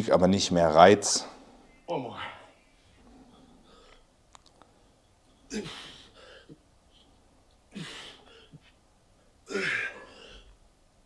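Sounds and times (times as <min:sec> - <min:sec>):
man grunting exhales: 0:09.5 - 0:10.5.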